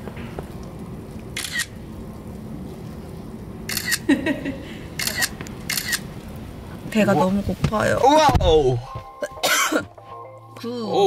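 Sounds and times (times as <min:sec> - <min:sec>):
camera shutter clicking: 0:01.4 - 0:01.7, 0:03.7 - 0:04.0, 0:05.0 - 0:06.0.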